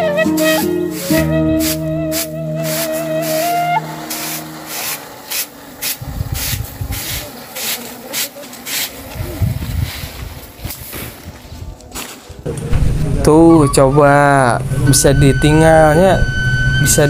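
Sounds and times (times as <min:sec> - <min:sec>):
flute melody: 0:00.0 - 0:04.9, 0:13.3 - 0:17.0.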